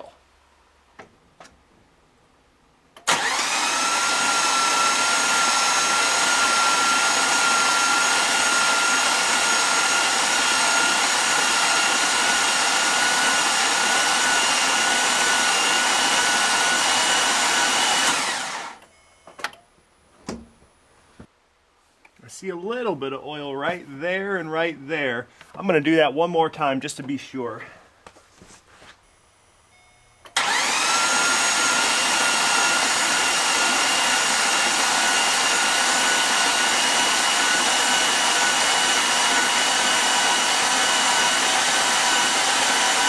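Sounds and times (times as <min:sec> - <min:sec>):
starter motor cranking engine: 0:03.0 - 0:18.8, 0:30.3 - 0:43.0.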